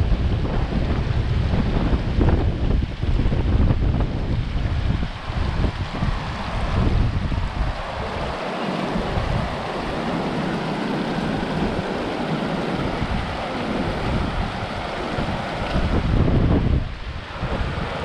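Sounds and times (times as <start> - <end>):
water flowing: 0.0 - 18.0
wind blowing across microphone: 0.0 - 18.0.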